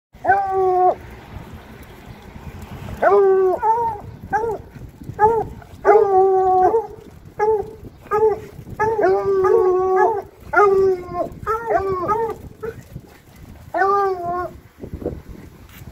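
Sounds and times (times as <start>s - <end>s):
dogs howling and barking: 0.2s - 1.1s, 3.0s - 13.0s, 13.6s - 14.6s.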